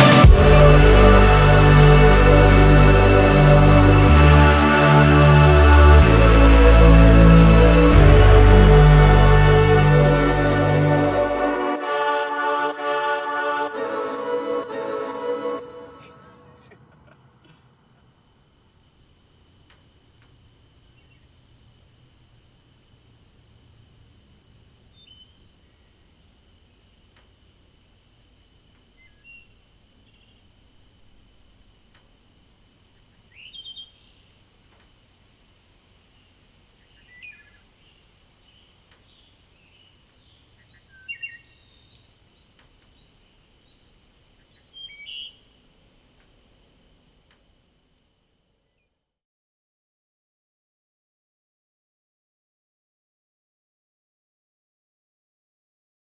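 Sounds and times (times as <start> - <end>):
faint insect tones: 17.3 - 49.2.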